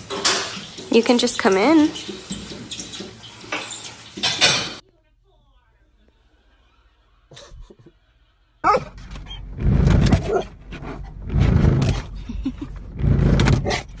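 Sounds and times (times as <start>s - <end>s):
dog barking: 8.6s - 9.0s.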